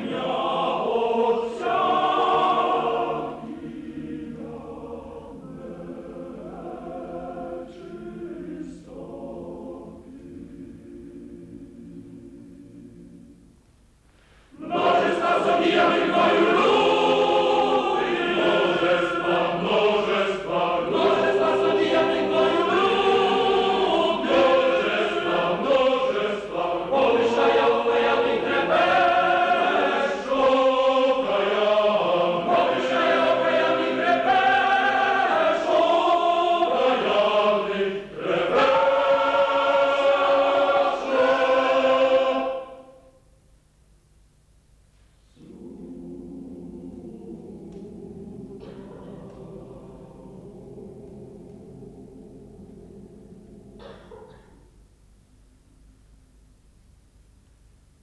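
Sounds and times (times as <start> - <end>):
choir singing slowly: 0.0 - 43.3, 45.2 - 56.1
short breath: 14.1 - 14.6.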